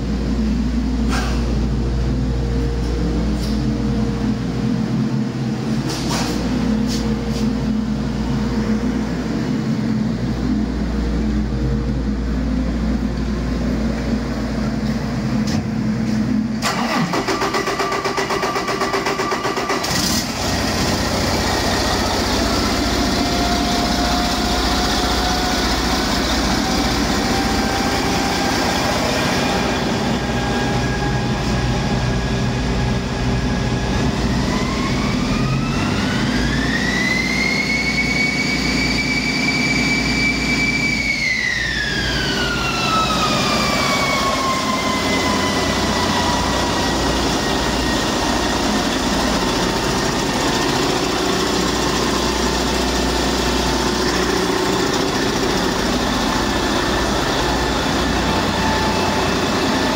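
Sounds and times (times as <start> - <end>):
high engine whine rising: 0.0 - 59.9
diesel truck engine idling: 19.5 - 36.3, 41.8 - 59.9.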